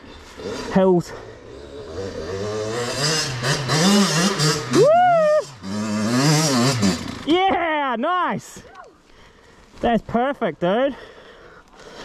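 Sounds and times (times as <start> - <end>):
dirt bike engine revving: 0.2 - 7.5
person whooping: 4.7 - 5.6.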